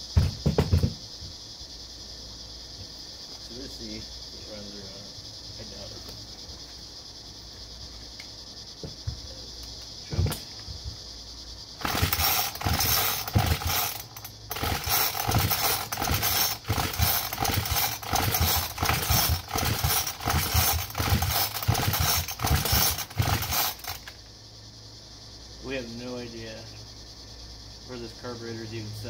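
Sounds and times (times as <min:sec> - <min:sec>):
crickets chirping: 0:00.0 - 0:29.0
engine turning over: 0:11.8 - 0:24.2
recoil starter pulls whirring: 0:11.8 - 0:24.2.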